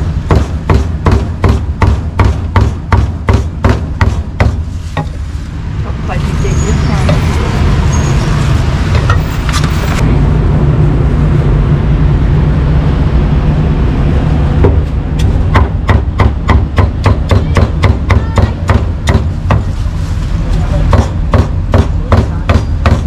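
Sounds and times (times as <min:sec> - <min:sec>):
low rumble of street traffic: 0:00.0 - 0:23.0
cleaver chopping on a board: 0:00.3 - 0:04.6, 0:14.7 - 0:19.7, 0:20.9 - 0:23.0.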